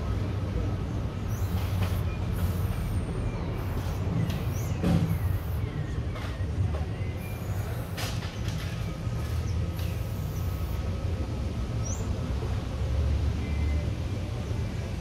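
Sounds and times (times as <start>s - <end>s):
bird chirp: 0.8s - 10.8s, 11.8s - 12.2s
spray can hissing: 1.3s - 5.6s, 7.2s - 8.4s, 9.1s - 10.8s.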